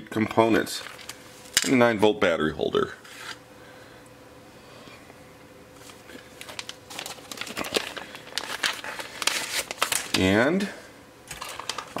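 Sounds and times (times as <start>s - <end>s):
paper rustling and crinkling: 5.8s - 10.4s, 11.3s - 12.0s.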